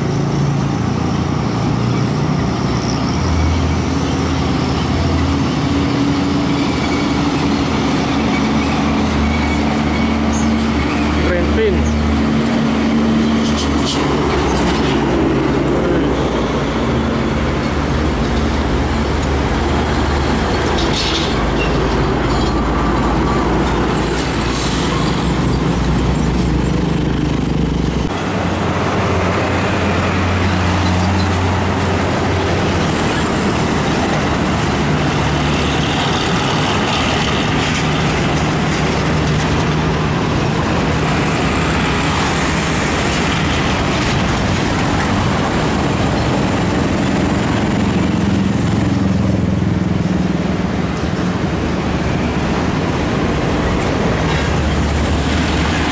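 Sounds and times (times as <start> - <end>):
diesel truck engines droning: 0.0 - 55.9
traffic noise: 0.0 - 55.9.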